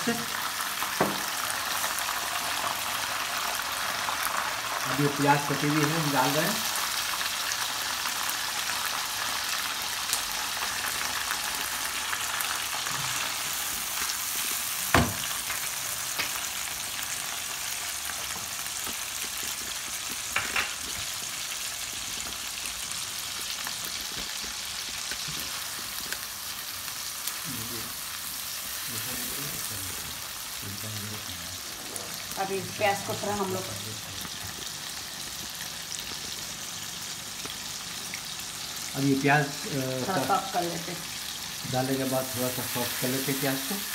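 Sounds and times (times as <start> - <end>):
onions sizzling in hot oil: 0.0 - 43.9
sharp knock: 14.9 - 15.2.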